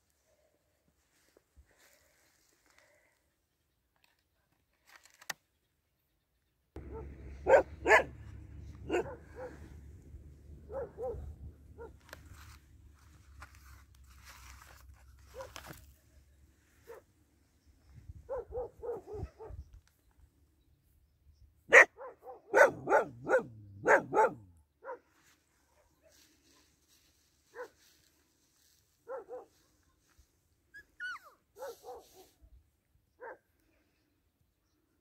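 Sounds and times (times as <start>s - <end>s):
puppies yapping and barking: 6.8s - 12.1s.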